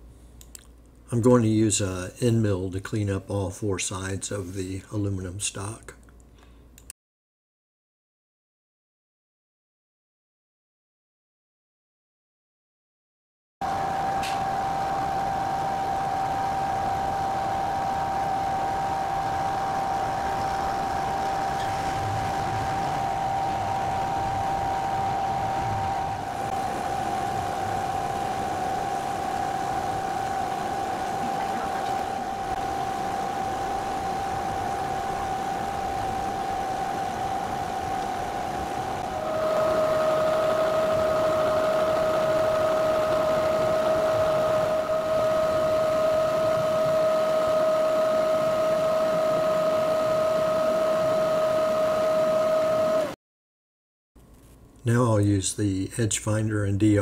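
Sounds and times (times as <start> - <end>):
milling machine whine: 13.6 - 53.2
metal cutting noise: 13.7 - 51.3.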